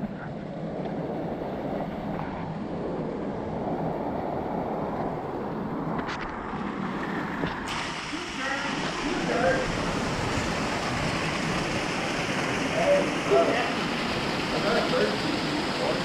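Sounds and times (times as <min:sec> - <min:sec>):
small waterfall rushing: 0:06.4 - 0:16.0.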